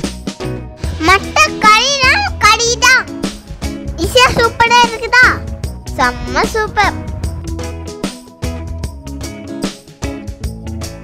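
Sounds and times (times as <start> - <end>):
guitar over a steady beat: 3.1 - 11.0.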